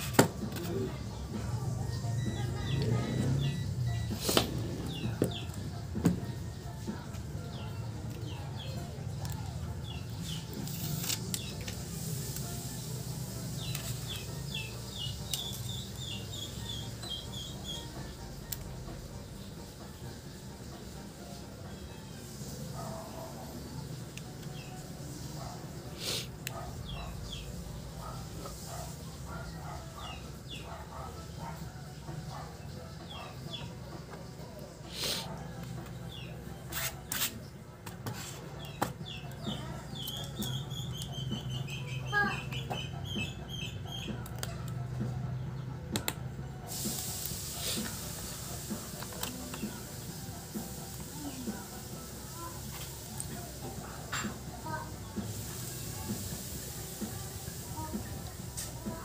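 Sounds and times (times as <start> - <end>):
birds chirping: 0.0 - 18.4, 19.2 - 46.0.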